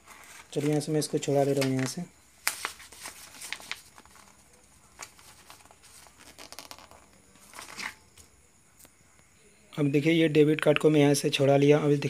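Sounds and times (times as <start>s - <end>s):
paper rustling and crinkling: 0.0s - 8.0s.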